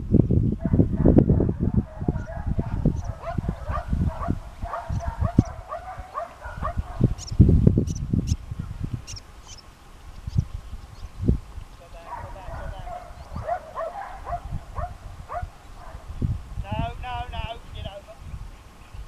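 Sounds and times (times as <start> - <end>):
wind buffeting microphone: 0.0 - 19.0
distant dog yelps: 0.7 - 7.2, 12.0 - 16.1.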